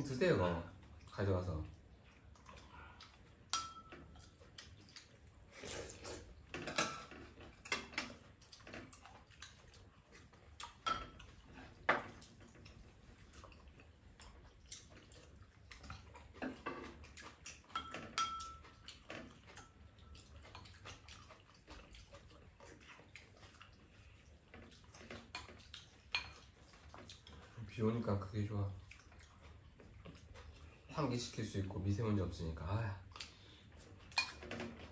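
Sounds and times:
utensils tapping ceramic bowls: 3.5s - 4.2s, 17.7s - 18.8s.

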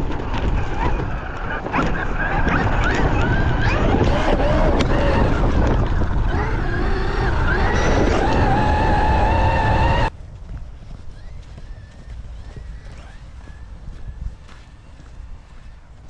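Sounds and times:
electric motor whine: 0.0s - 10.1s
tires rushing through snow: 0.0s - 10.2s.

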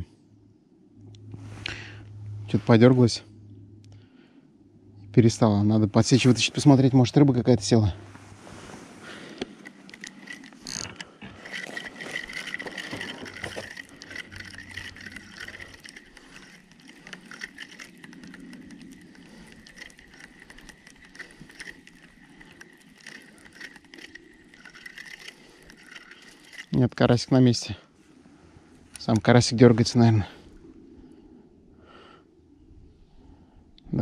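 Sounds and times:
fishing reel clicking and whirring: 9.3s - 27.2s.

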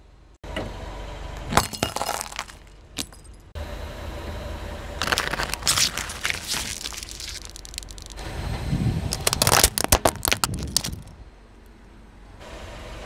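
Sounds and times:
car engine rumble: 0.1s - 13.0s
tyre crushing plastic cups: 1.4s - 3.2s, 5.0s - 8.2s, 9.1s - 11.1s.

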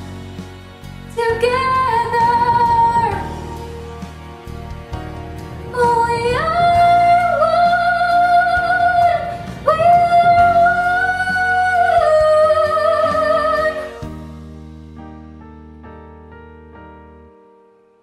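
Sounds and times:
girl singing: 1.2s - 3.6s, 5.7s - 14.0s.

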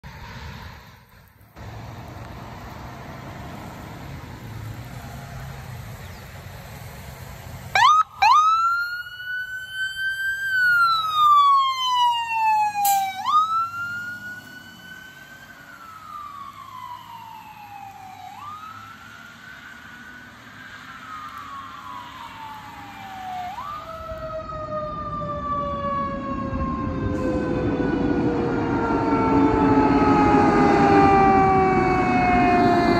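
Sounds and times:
ambulance siren wailing: 7.7s - 32.9s.

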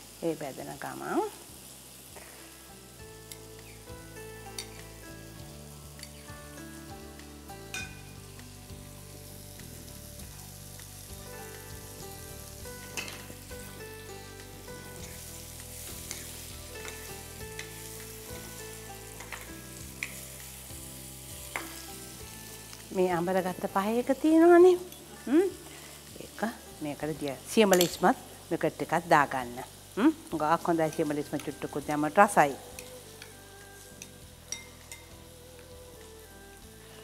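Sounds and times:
food sizzling in oil: 0.0s - 37.0s.

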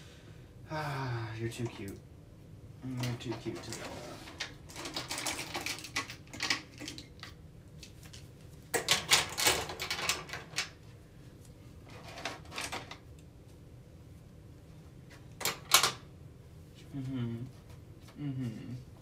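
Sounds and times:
small objects clattering in drawer: 3.0s - 7.4s, 11.9s - 13.0s.

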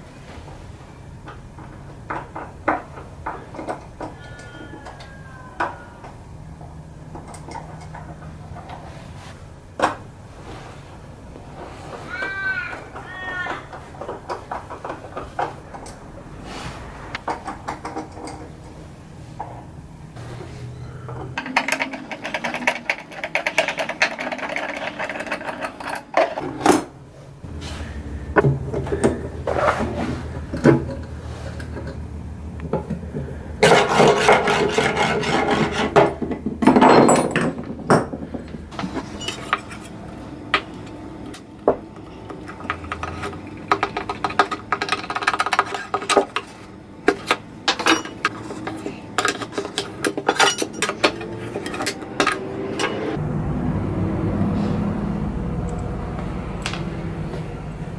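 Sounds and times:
scraping and knocks on wood: 32.7s - 39.9s.

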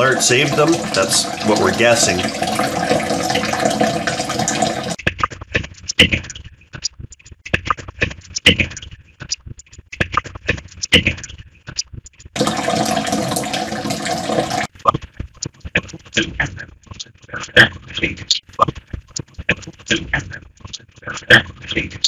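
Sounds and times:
choppy processed water fragments: 0.0s - 5.0s
running tap water: 0.0s - 5.0s, 12.4s - 14.7s.

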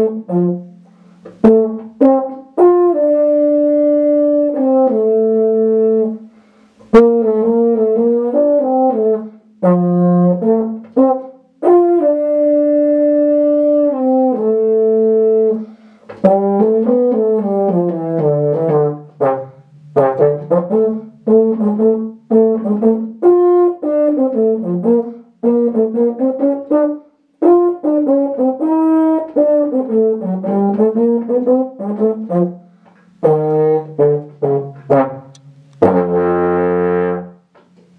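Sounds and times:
solo euphonium playing: 0.0s - 37.6s
player breathing: 0.8s - 1.3s, 6.3s - 6.9s, 15.6s - 16.1s.

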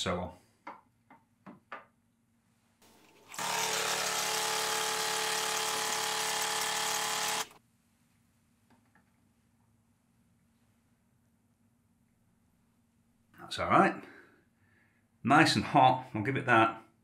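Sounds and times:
coffee machine pump buzzing: 3.1s - 7.6s.

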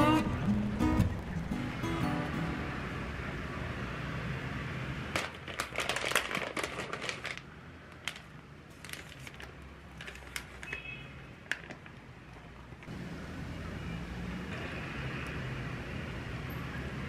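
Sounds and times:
plastic pouches crinkling: 5.1s - 12.0s.

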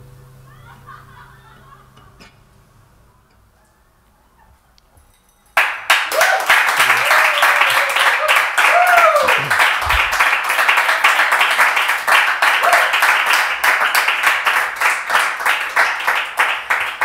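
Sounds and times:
audience applauding: 5.6s - 17.0s.

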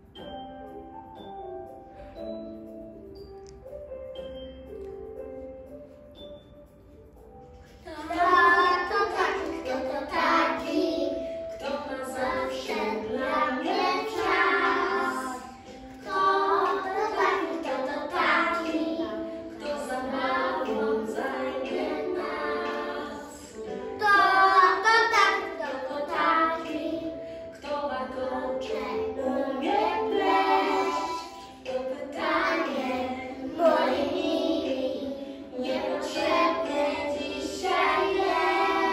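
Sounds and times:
children singing: 7.8s - 38.9s.

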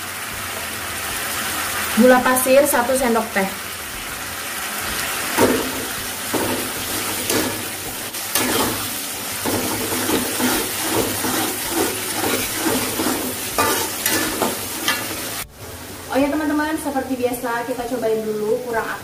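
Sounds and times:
paste sizzling in wok: 0.0s - 16.2s
metal spatula scraping pan: 5.4s - 15.4s.

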